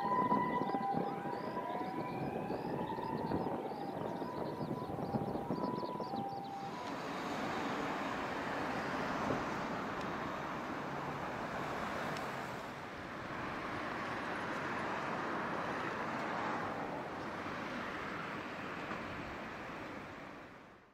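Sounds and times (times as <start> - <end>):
siren tone: 0.0 - 7.2
passing vehicles: 0.0 - 20.9.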